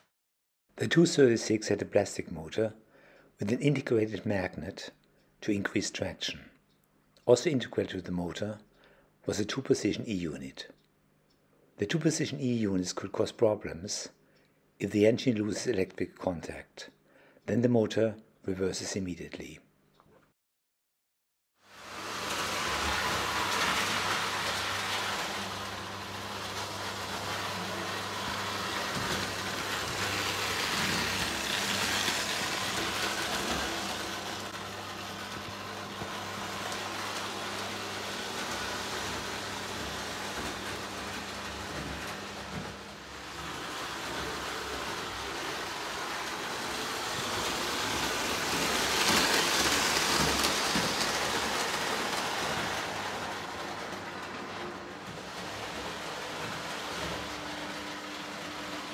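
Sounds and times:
toy train wheels rattling on track: 0:21.8 - 0:34.6, 0:35.2 - 0:57.7.

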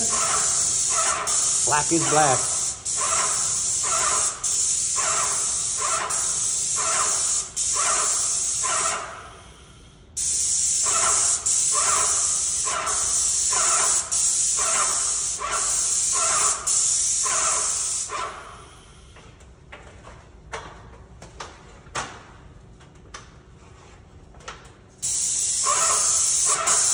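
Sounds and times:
paint spray gun hissing: 0:00.0 - 0:09.0, 0:10.2 - 0:18.2, 0:25.0 - 0:26.9.

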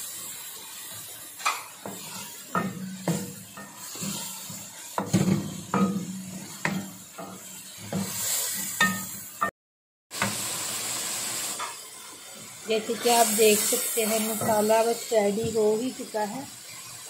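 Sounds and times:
food sizzling: 0:00.0 - 0:17.0
spoon scraping metal pan: 0:01.4 - 0:09.2.

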